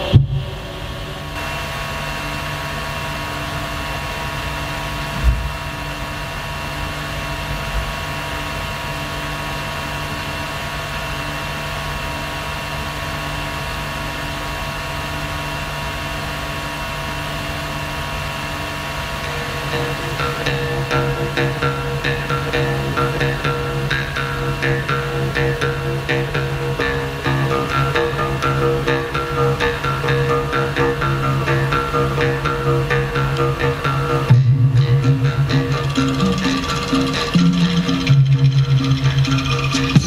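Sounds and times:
low thump: 0.1s - 0.5s
steady low drone: 17.0s - 40.0s
thin held tones: 19.2s - 40.0s.

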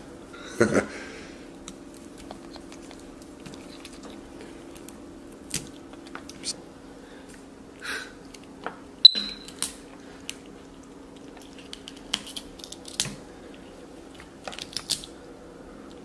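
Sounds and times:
steady low hum: 0.0s - 16.0s
monkey crunching broccoli: 1.5s - 6.6s, 9.3s - 15.2s.

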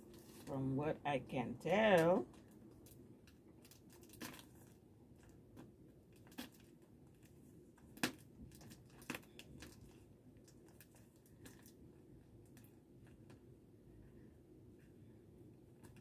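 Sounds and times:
plastic crinkling: 2.0s - 11.8s.

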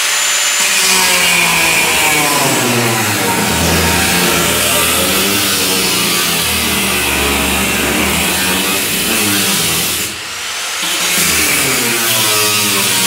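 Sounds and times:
cutoff wheel grinding metal: 0.9s - 10.2s.

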